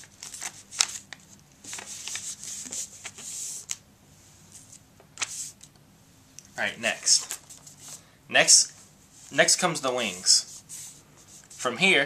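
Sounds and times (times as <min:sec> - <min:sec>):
paper crackle: 0:00.0 - 0:03.8
paper crinkling: 0:00.0 - 0:03.8.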